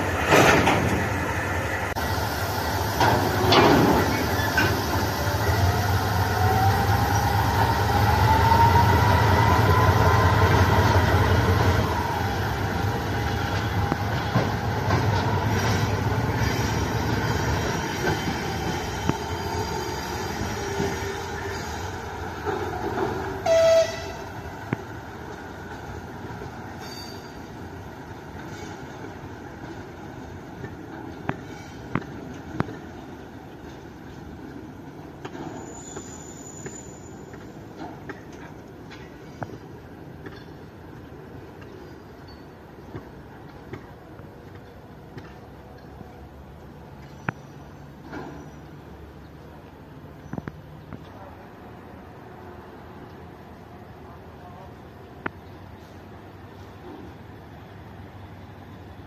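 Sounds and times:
locomotive engine hum and whine: 0.0s - 59.0s
horn toot: 23.4s - 24.2s.

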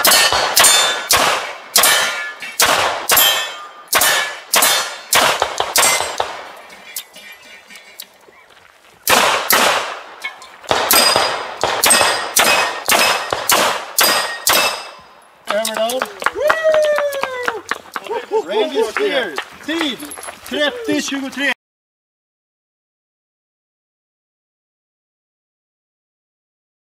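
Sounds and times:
steel targets ringing: 0.0s - 5.2s, 5.8s - 7.6s, 10.2s - 15.2s
pistol shots: 0.0s - 6.6s, 9.0s - 15.0s.

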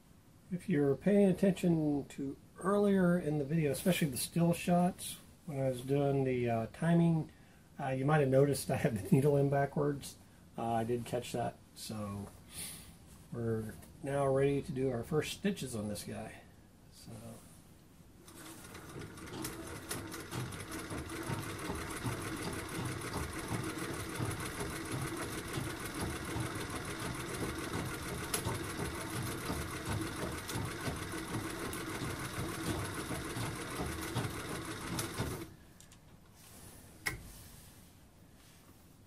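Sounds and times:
sewing machine clattering: 18.3s - 35.5s.

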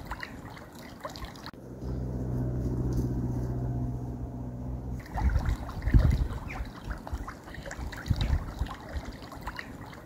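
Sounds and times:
water trickling and lapping: 0.0s - 1.6s, 5.0s - 10.0s
vehicle engine humming: 1.5s - 6.4s.

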